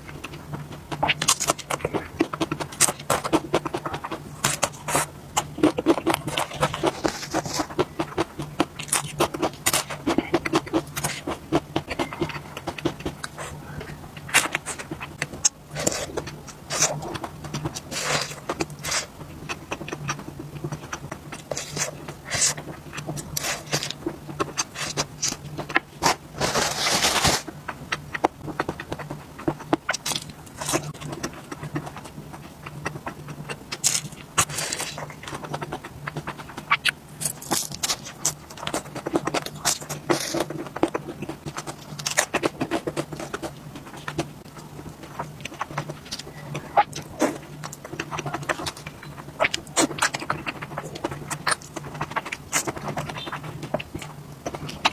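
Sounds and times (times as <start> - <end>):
steady low hum: 0.0 - 54.9
wet chewing and crunching: 0.0 - 54.9.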